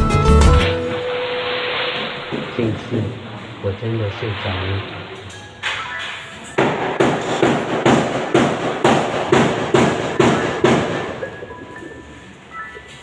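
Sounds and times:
sharp ringing knocks: 6.6s - 11.3s.

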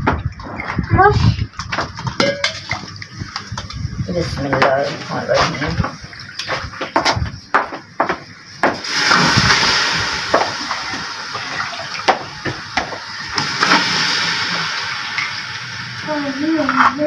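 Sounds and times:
pieces dropped into metal pot: 1.6s - 2.9s
running water rush: 8.6s - 17.0s.

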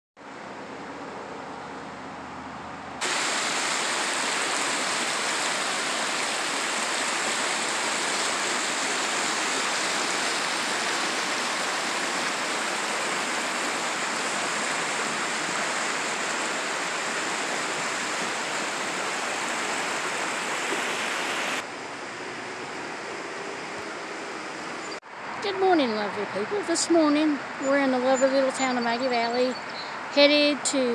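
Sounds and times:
creek rushing over rocks: 3.0s - 24.8s.

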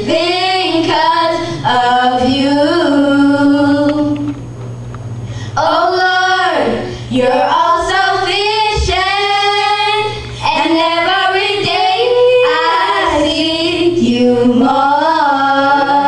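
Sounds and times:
girls singing gospel song: 0.0s - 4.4s, 5.6s - 16.0s.

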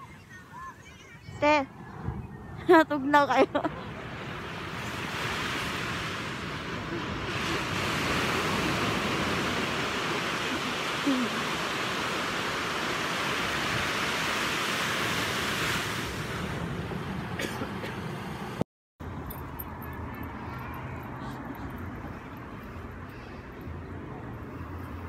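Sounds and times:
ocean surf on sandy beach: 0.0s - 19.5s.

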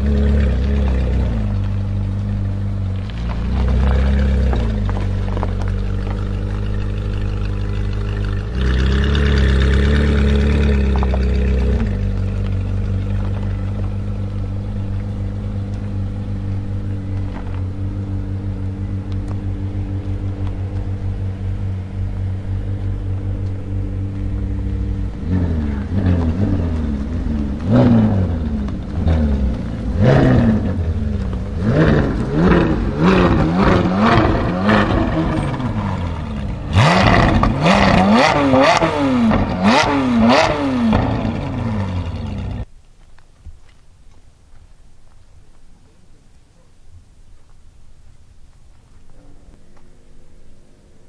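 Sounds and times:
engine throttle blips: 0.0s - 42.7s
sports car engine idling: 0.0s - 42.7s.

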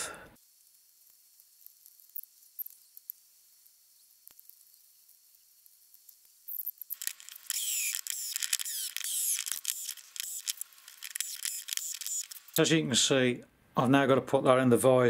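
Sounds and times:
cordless drill motor whining: 7.0s - 12.4s.

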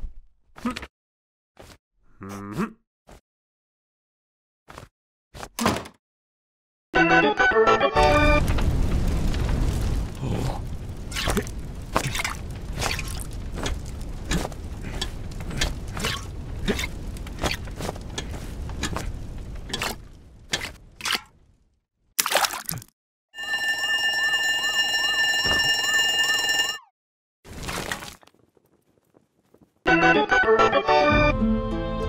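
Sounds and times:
fire alarm bell ringing: 23.4s - 26.9s.

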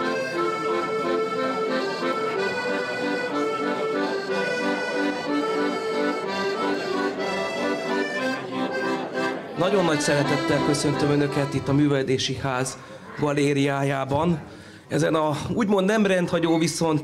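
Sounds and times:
accordions playing a tune: 0.0s - 12.4s.

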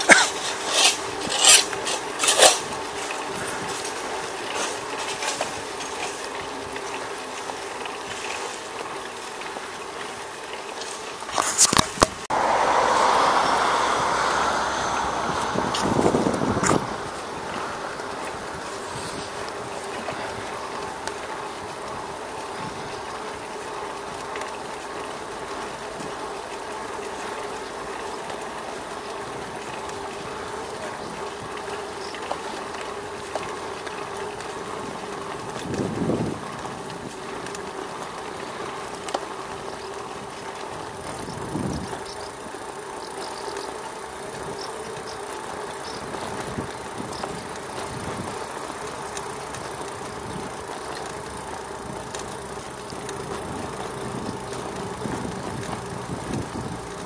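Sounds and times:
bicycle rolling hum: 0.0s - 57.0s
short low rumbles: 12.3s - 19.6s.

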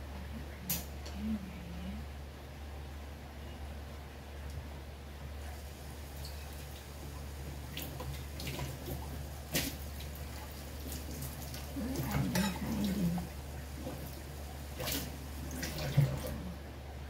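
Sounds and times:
steady low hum: 0.0s - 17.0s
water dripping: 5.4s - 16.5s.

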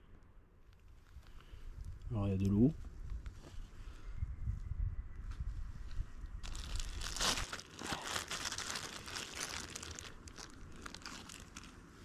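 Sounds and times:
plastic bag crinkling: 6.4s - 11.9s.

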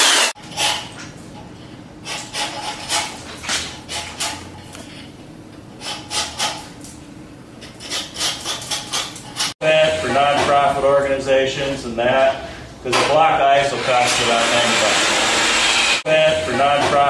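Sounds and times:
tool shaving ice: 0.0s - 0.8s, 7.8s - 9.6s, 13.7s - 16.0s.

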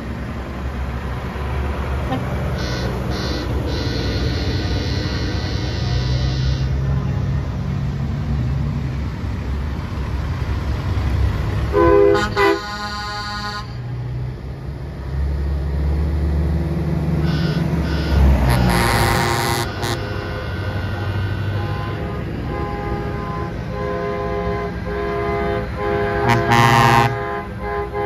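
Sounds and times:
diesel truck engines passing: 0.0s - 28.0s
truck horn blasts: 2.0s - 7.2s, 11.7s - 14.0s, 17.2s - 28.0s.

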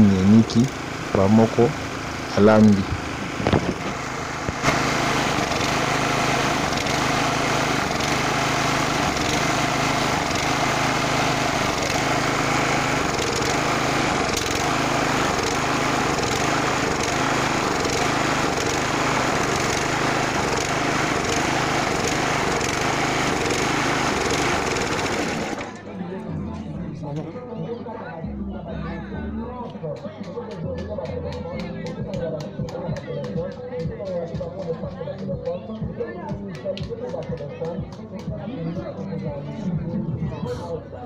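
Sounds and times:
small petrol engine droning: 0.0s - 26.1s.

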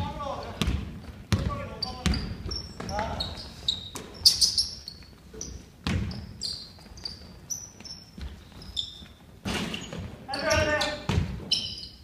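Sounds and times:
shoes squeaking on gym floor: 0.4s - 12.0s
basketball bouncing: 0.6s - 3.1s, 5.8s - 6.4s, 9.4s - 11.5s.

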